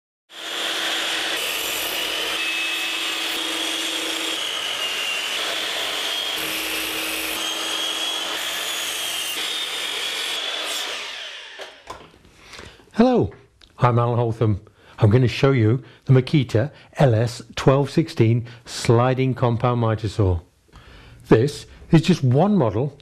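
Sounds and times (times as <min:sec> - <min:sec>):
mitre saw cutting timber: 0:00.3 - 0:12.0.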